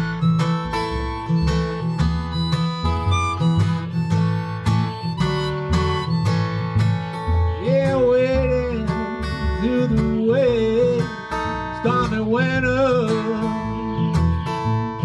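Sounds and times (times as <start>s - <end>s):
acoustic guitar strumming: 0.0s - 15.0s
harmonica melody: 0.0s - 15.0s
washtub bass plucked: 0.0s - 15.0s.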